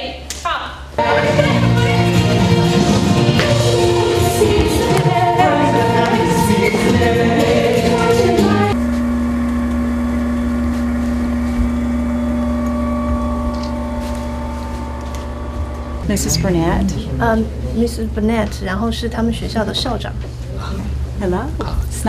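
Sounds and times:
group singing over music: 0:01.0 - 0:08.8
pottery wheel motor hum: 0:04.0 - 0:22.0.

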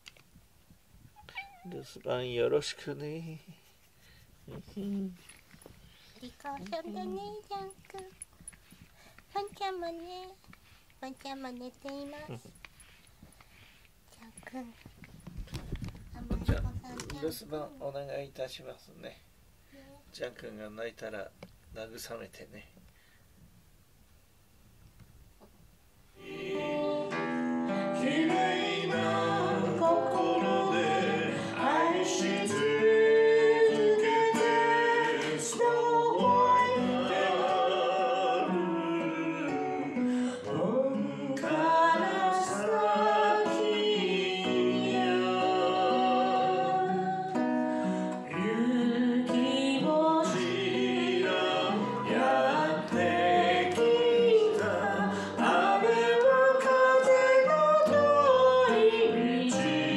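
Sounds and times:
acoustic guitar: 0:00.0 - 0:18.3, 0:26.1 - 0:59.9
man singing: 0:28.0 - 0:46.6.

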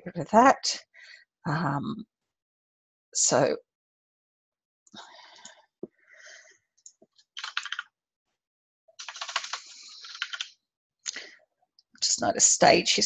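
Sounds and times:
typing on keyboard: 0:07.4 - 0:07.8, 0:09.0 - 0:10.5.

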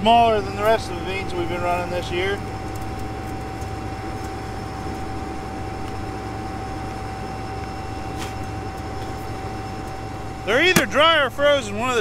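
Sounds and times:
combine engine drone: 0:00.0 - 0:12.0
thin steady whine: 0:00.0 - 0:12.0.

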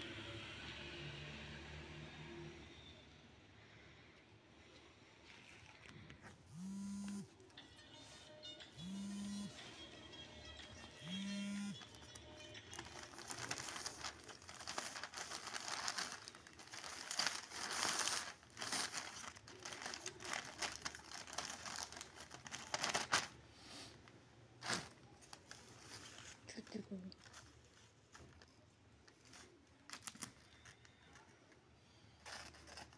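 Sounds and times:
plastic mailer bag crinkling: 0:11.7 - 0:23.4, 0:24.6 - 0:26.6, 0:29.1 - 0:31.2.

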